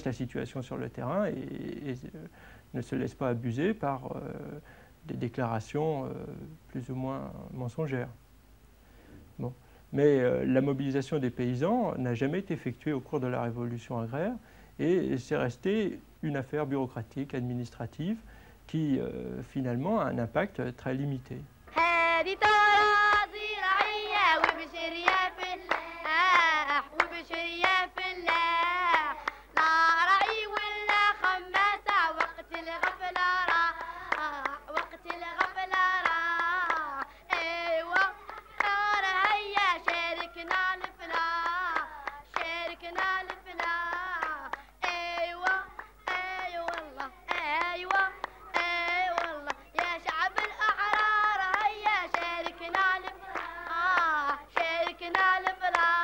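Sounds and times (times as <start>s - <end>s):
girls singing: 21.7s - 56.0s
hands clapping in rhythm: 21.7s - 56.0s.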